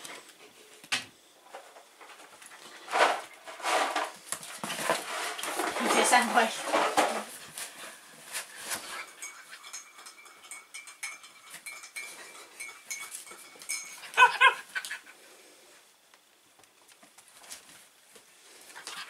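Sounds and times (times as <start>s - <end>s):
dogs moving on wooden floor: 2.1s - 9.3s
dog yipping: 14.2s - 15.0s
dog whining: 14.2s - 15.1s.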